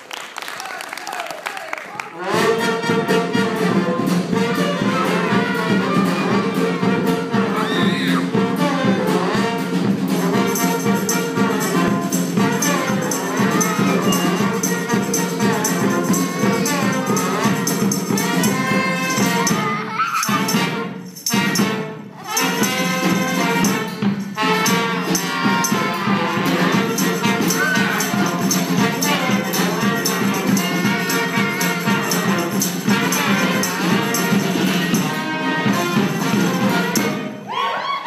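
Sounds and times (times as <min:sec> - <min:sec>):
live band music: 0:02.1 - 0:37.6
tambourine shaking: 0:10.0 - 0:37.4.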